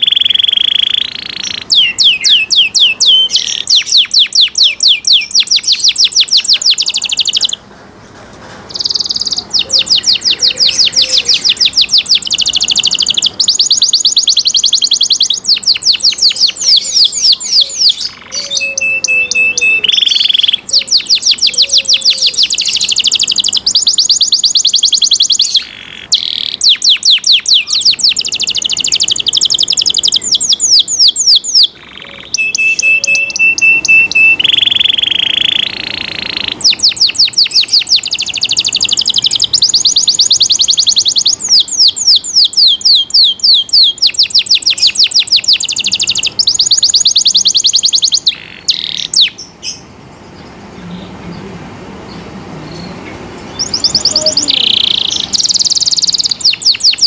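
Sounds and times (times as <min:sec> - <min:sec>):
canary singing trills: 0:00.0 - 0:07.7, 0:08.7 - 0:57.0
held whistle: 0:32.4 - 0:35.8.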